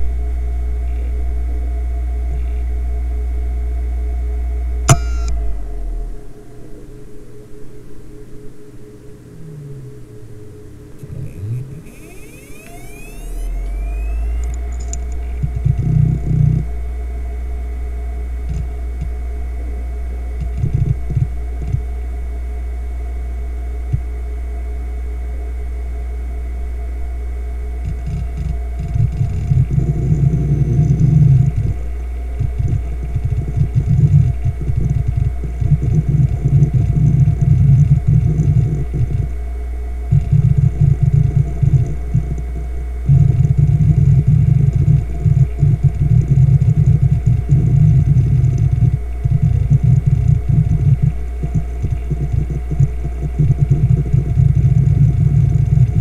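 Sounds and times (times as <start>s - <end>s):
hard drive spinning hum: 0.0s - 56.0s
hard drive heads seeking: 11.0s - 16.3s.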